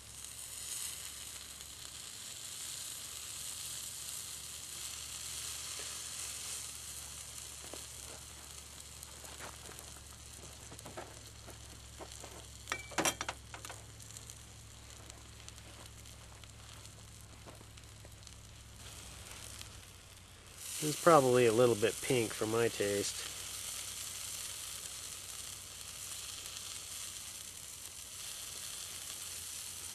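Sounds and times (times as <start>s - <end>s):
steak sizzling on a grill plate: 0.0s - 29.9s.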